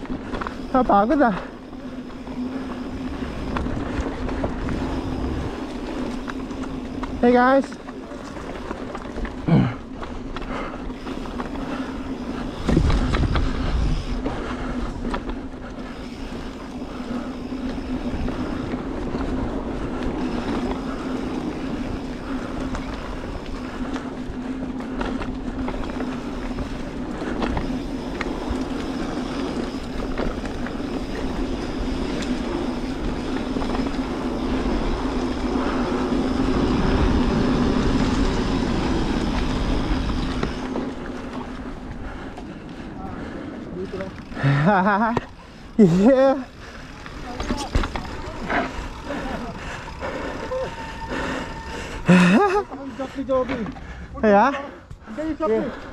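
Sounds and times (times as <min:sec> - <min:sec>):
bike rolling and rattling: 0:00.0 - 0:55.9
steady hum: 0:10.5 - 0:53.3.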